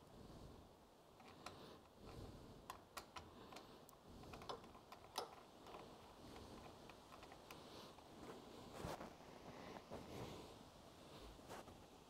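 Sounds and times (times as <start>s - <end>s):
clicks and taps of cable lugs: 2.7s - 7.6s.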